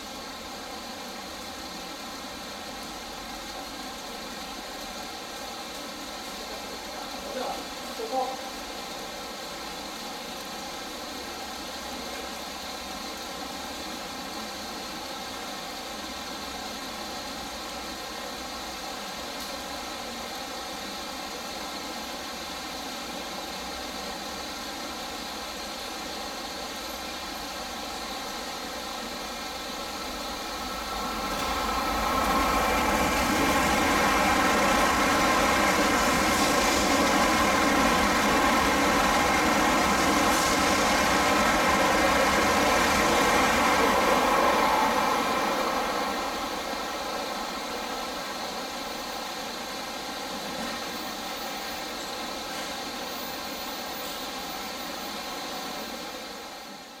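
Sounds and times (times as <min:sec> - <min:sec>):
rain hiss: 0:00.0 - 0:57.0
train rushing past: 0:20.4 - 0:57.0.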